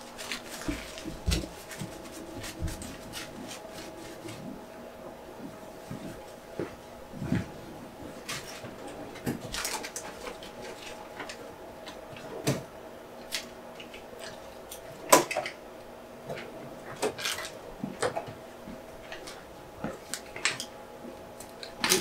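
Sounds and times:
paper towel wiping: 0.0s - 4.8s
faint steady hum: 0.0s - 22.0s.

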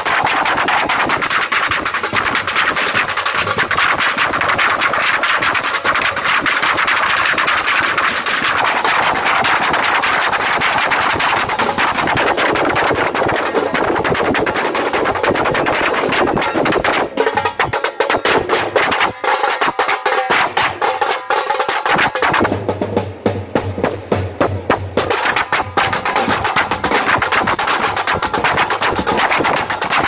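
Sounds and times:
side drum rolls: 0.0s - 30.0s
bass drums beating: 22.0s - 27.7s.

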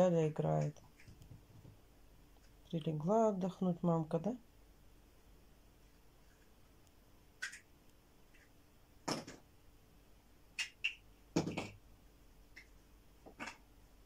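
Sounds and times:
toys knocking and clattering: 9.0s - 9.4s, 11.4s - 11.8s.

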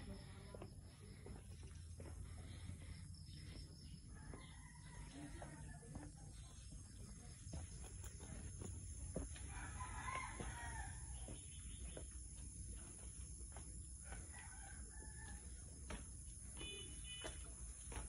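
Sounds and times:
rooster crowing: 4.1s - 5.5s, 9.4s - 11.3s, 14.0s - 15.7s.

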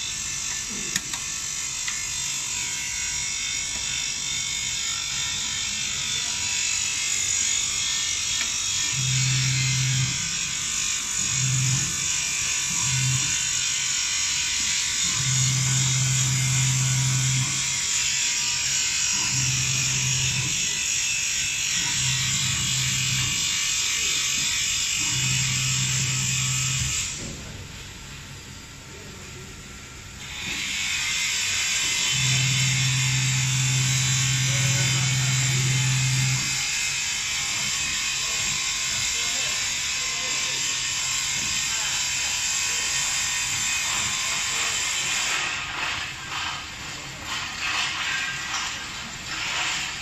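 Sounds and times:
electric motor hum: 0.0s - 27.6s, 30.1s - 50.0s.

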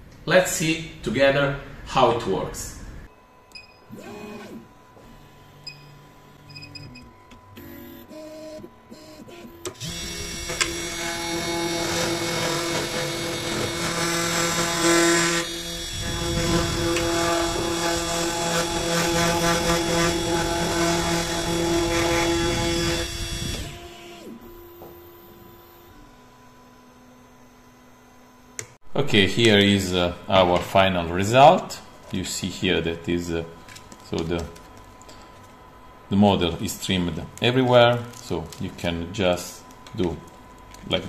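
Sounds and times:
cnc spindle whine cutting plastic: 3.9s - 28.8s.

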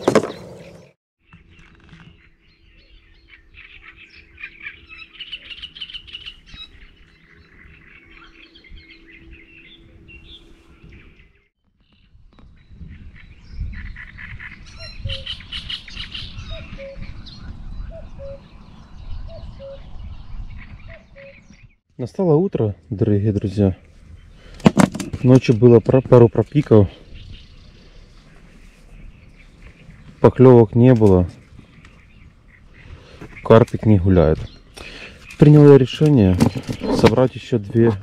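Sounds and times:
small birds chirping and singing: 0.0s - 38.0s
wind rumble on microphone: 2.6s - 21.8s, 26.4s - 30.2s.

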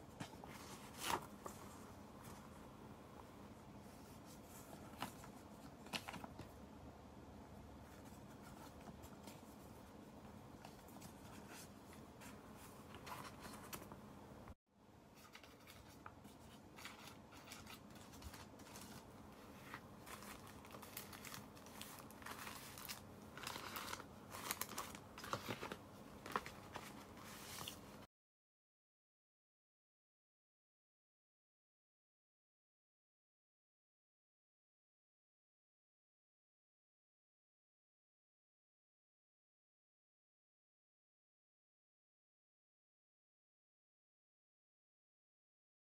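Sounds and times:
paper rustling and crinkling: 0.1s - 2.6s, 3.9s - 6.6s, 10.6s - 14.0s, 15.1s - 28.1s.

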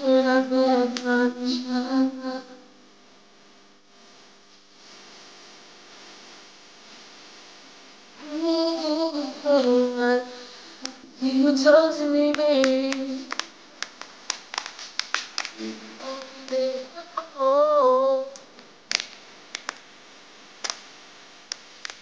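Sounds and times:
man singing unaccompanied: 0.0s - 2.6s, 8.2s - 13.3s, 15.6s - 18.4s.

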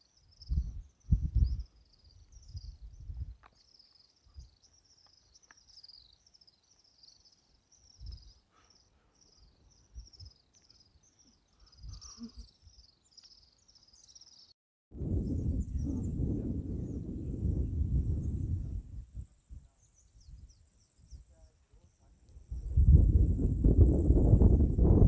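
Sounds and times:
insect chirping: 0.0s - 14.5s.

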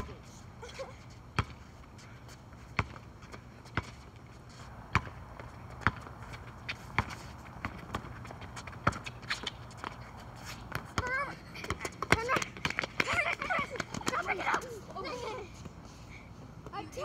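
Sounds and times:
basketball bouncing on court: 1.3s - 1.6s, 2.7s - 4.0s, 4.8s - 6.2s, 6.9s - 9.1s, 10.7s - 14.4s.

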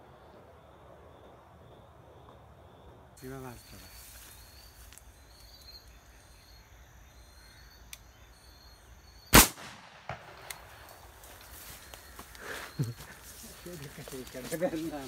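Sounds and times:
shotgun shot with echo: 9.3s - 10.5s.

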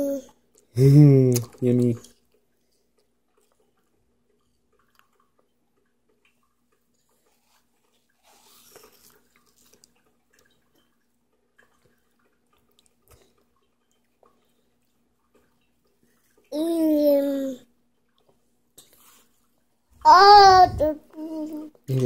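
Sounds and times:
toddler chewing an apple: 7.0s - 10.9s.

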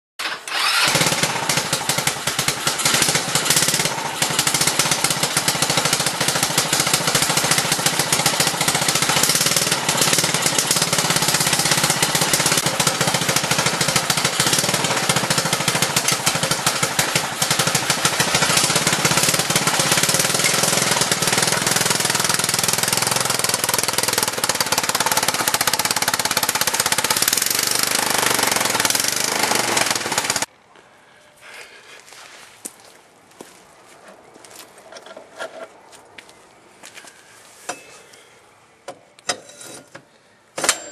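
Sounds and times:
small engine rattling: 0.2s - 30.5s.

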